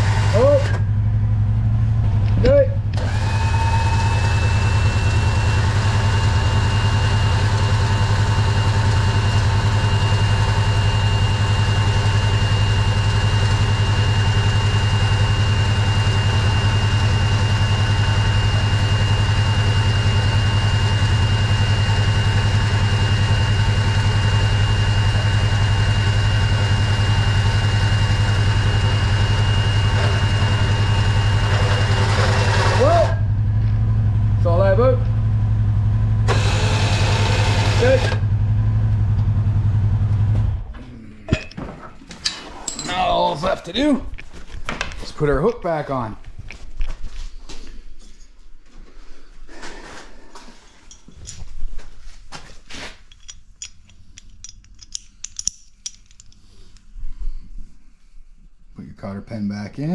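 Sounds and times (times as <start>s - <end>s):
electric winch whining: 0.0s - 0.9s, 2.9s - 33.5s, 36.1s - 38.8s.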